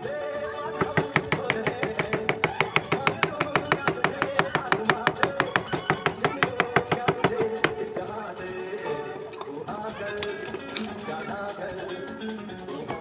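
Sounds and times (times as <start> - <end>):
mallet striking chisel into wood: 0.8 - 7.8.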